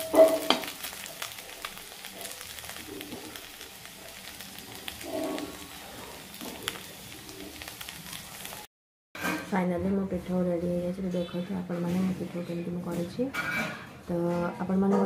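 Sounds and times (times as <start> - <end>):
oil crackles and pops: 0.0 - 8.7
fritters sizzling in oil: 0.0 - 9.4.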